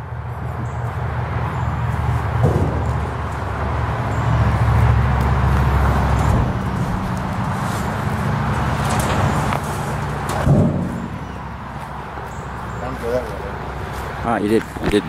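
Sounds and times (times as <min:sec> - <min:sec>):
heavy thump: 0:02.4 - 0:03.3, 0:10.4 - 0:11.4.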